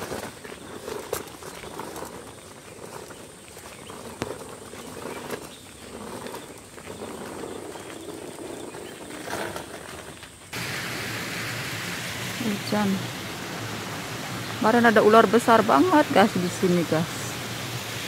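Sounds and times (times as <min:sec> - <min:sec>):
footsteps on wet concrete: 0:00.0 - 0:10.6
steady rushing hiss: 0:00.0 - 0:18.0.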